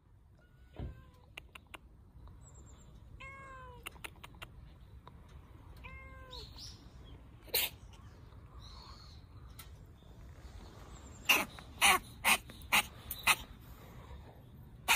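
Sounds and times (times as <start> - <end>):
cat meowing: 3.2 - 4.0, 5.8 - 6.5.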